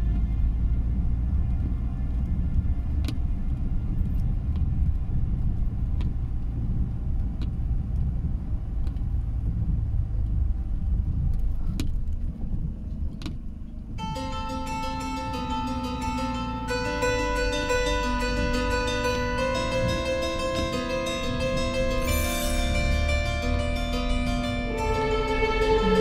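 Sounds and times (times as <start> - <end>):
car cabin engine rumble: 0.0 - 26.0
windscreen wiper clicking: 0.9 - 22.0
plucked-string music: 14.0 - 26.0.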